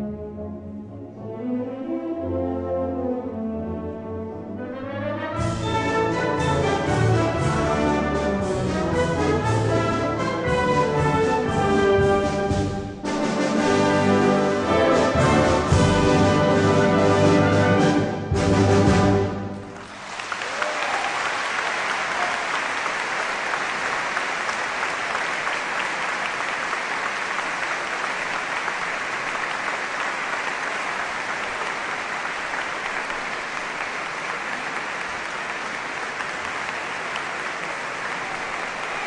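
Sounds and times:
audience applauding: 19.6s - 39.0s.

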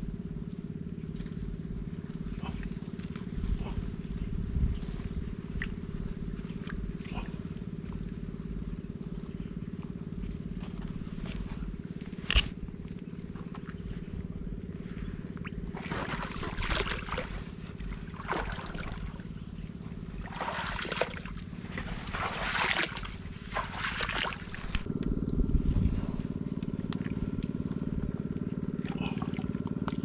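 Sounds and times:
small boat engine running: 0.0s - 30.0s
water splashing and gurgling: 11.4s - 30.0s.

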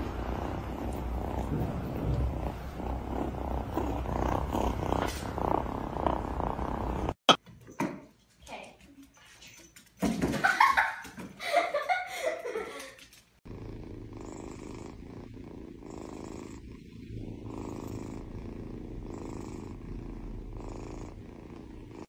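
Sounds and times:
kitten purring: 0.0s - 7.2s, 13.4s - 22.0s.

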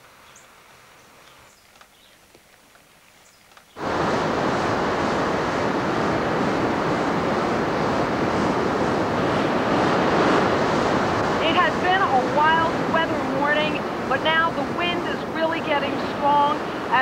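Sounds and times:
wind buffeting microphone: 3.7s - 17.0s
surf breaking on beach: 3.8s - 17.0s.

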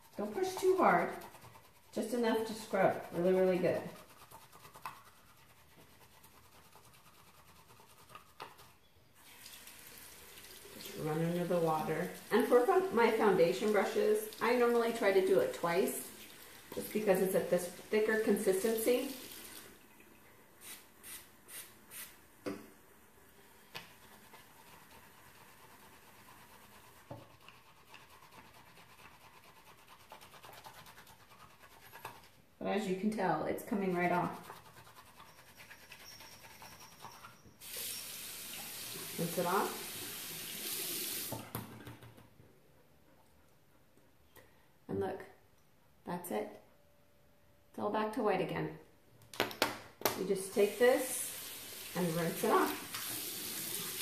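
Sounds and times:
brush scrubbing on mat: 0.0s - 8.8s, 24.0s - 32.5s, 33.7s - 37.4s.

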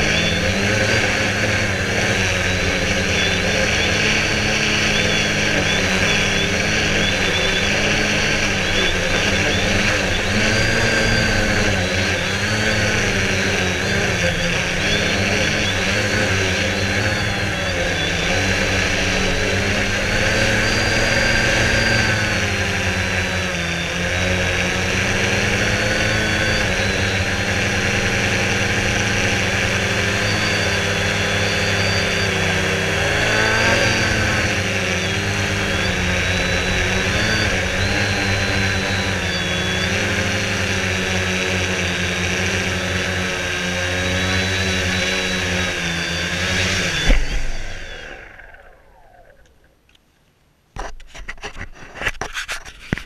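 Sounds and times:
quadcopter motors whining: 0.0s - 50.0s
drone touching down thump: 46.8s - 47.8s.

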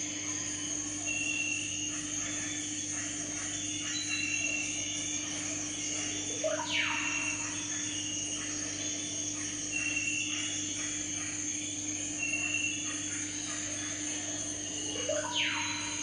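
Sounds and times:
low electrical hum: 0.0s - 16.0s.

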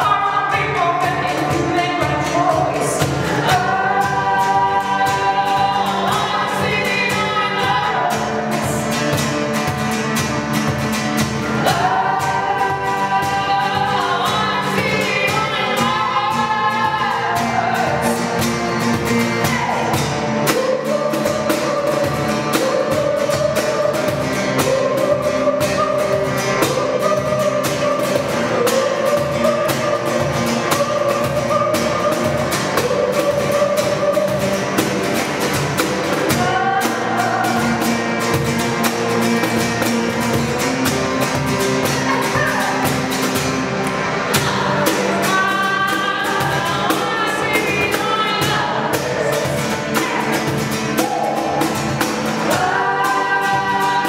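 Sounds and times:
woman singing: 0.0s - 9.8s, 11.4s - 43.4s, 44.2s - 54.0s
hand drum beat: 0.0s - 54.0s
strummed acoustic guitar: 0.0s - 54.0s.

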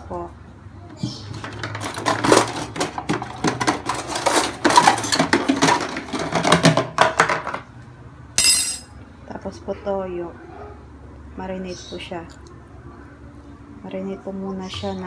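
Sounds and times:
kitchenware clattering and clinking: 1.4s - 7.6s, 8.4s - 8.9s.

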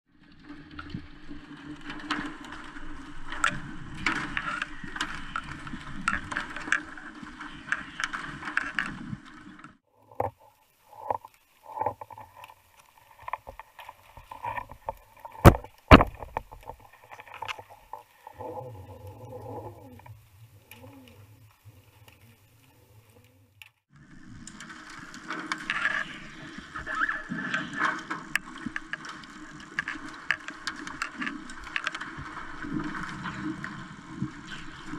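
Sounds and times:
underwater water rush: 0.1s - 34.9s.

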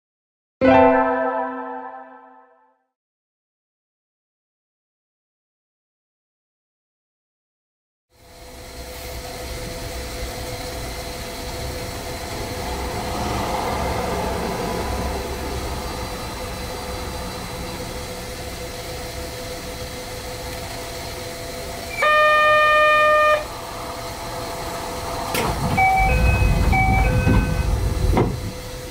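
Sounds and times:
train equipment humming: 8.2s - 28.9s
loud electric signal tone: 15.8s - 28.6s.

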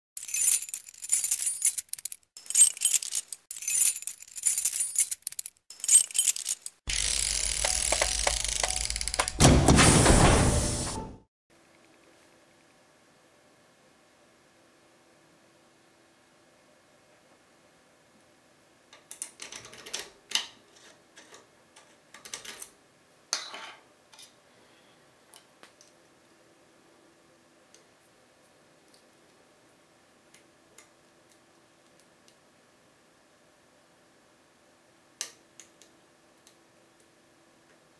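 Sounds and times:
glassy jingling shimmers: 0.2s - 9.1s
lockpicks clicking and scraping: 0.2s - 9.4s
steady hiss with low hum: 11.6s - 19.1s, 20.6s - 37.9s.

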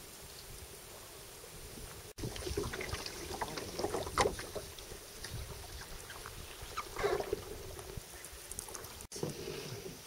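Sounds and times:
water splashing around canoe: 2.1s - 9.5s.

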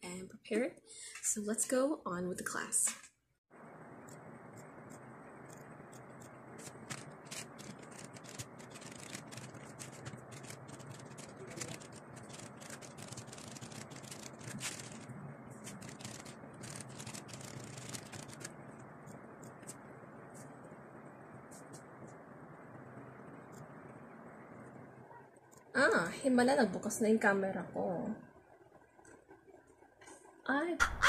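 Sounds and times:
rapid keyboard key clicks: 4.1s - 15.1s, 15.7s - 19.8s.

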